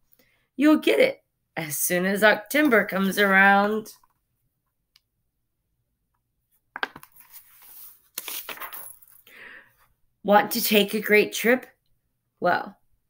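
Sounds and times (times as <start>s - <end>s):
book pages turning: 6.8s - 8.8s
paper rustling and scraping: 7.0s - 8.8s.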